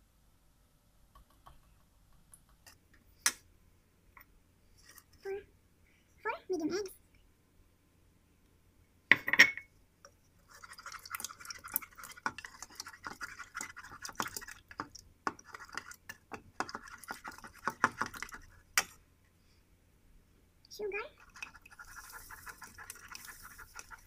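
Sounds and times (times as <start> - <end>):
whisk beating eggs in bowl: 10.4 - 19.0, 21.2 - 24.0.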